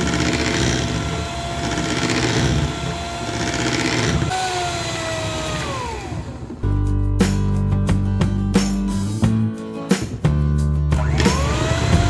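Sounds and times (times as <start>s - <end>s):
electric hand mixer whining: 0.0s - 6.6s, 11.0s - 12.0s.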